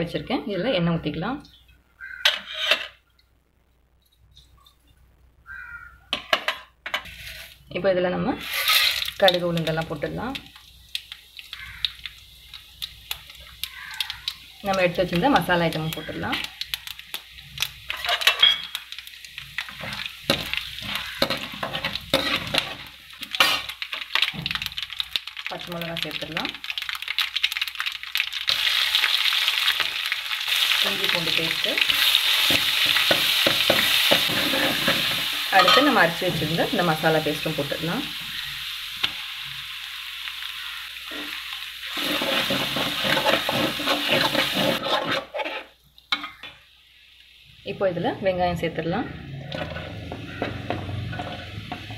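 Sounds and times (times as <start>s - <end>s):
metal ladle scraping a pan: 2.2s - 3.0s, 6.1s - 7.6s, 8.4s - 9.2s, 17.9s - 18.8s, 19.6s - 23.8s, 31.8s - 36.6s, 41.0s - 46.5s, 49.2s - 51.9s
spices sizzling in hot oil: 6.9s - 51.9s.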